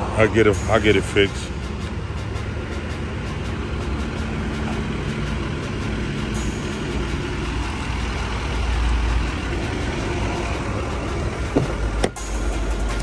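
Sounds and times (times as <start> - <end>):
motor vehicle rumbling: 0.0 - 13.0.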